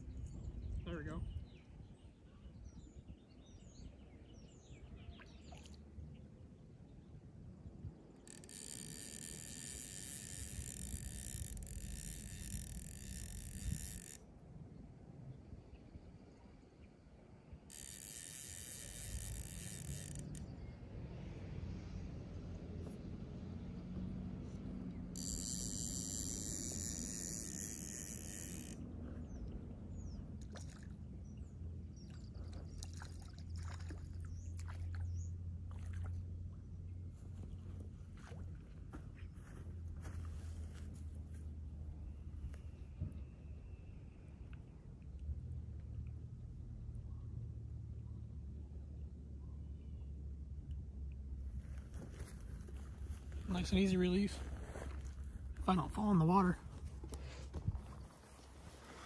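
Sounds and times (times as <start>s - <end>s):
wind rumble on microphone: 0.0s - 5.5s, 9.4s - 16.7s, 56.6s - 59.0s
low wind rumble: 5.9s - 33.3s
fly reel ratchet clicking: 8.2s - 14.2s, 17.7s - 20.6s, 24.5s - 28.8s.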